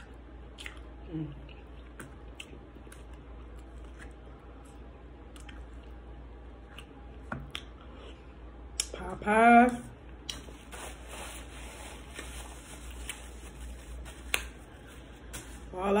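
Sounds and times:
person chewing food: 0.0 - 8.9
low steady hum: 0.0 - 16.0.

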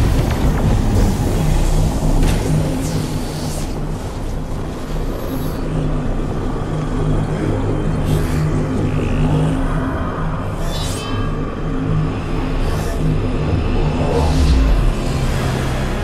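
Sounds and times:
dense low rumble: 0.0 - 5.2, 11.4 - 16.0
pulsing low drone: 0.0 - 16.0.

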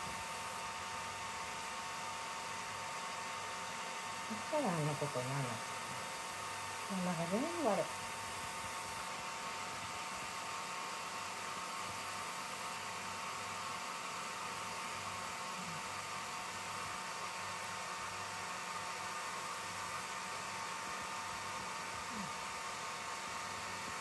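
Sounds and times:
faint hum: 4.2 - 9.0, 11.6 - 18.0, 18.6 - 24.0.

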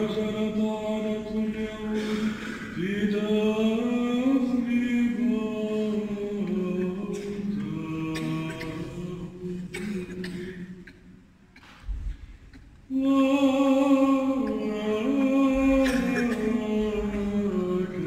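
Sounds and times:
voices chanting: 0.0 - 10.4.

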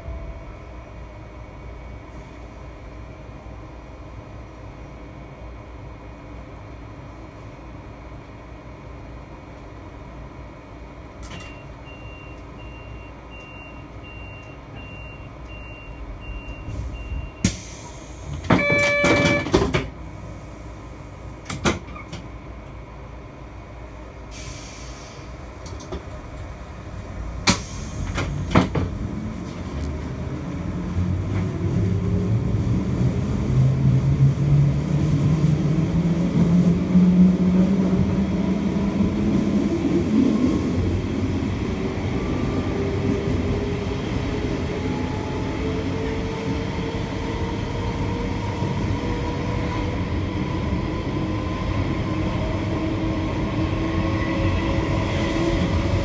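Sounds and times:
short signal tone: 18.5 - 19.6
train drone rising in pitch: 28.0 - 56.0.

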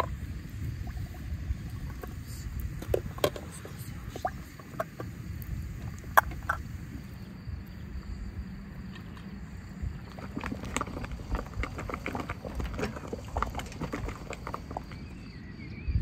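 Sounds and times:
wood fire crackling: 0.0 - 7.8
low steady rumble: 0.0 - 16.0.

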